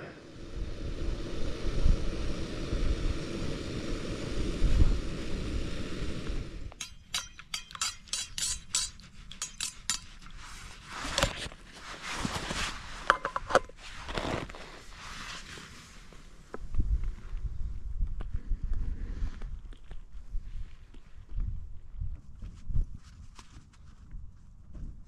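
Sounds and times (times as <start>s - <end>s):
wind buffeting microphone: 0.2s - 6.8s, 16.6s - 23.3s
spoon clinking in metal mug: 6.8s - 10.4s.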